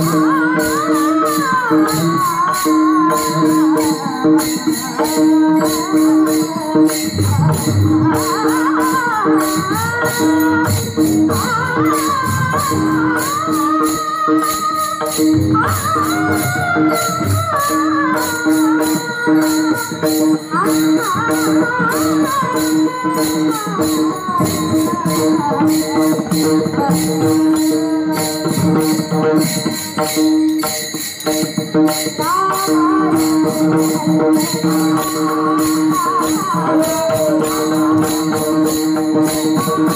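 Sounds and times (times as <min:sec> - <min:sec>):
women singing: 0:00.0 - 0:30.0, 0:32.0 - 0:39.9
hand cymbals clashing: 0:00.0 - 0:39.9.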